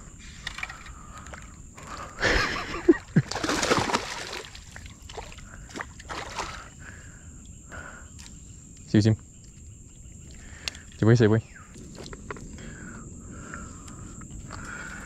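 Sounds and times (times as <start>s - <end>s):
water splashing and churning: 0.6s - 7.0s.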